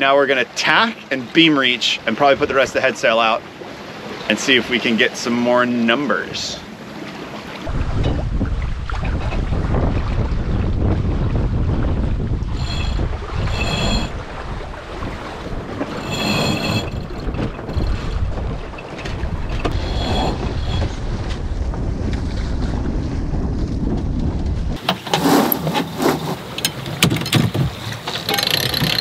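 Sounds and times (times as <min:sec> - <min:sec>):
water rushing past hull: 0:00.0 - 0:29.0
wind buffeting microphone: 0:07.6 - 0:24.9.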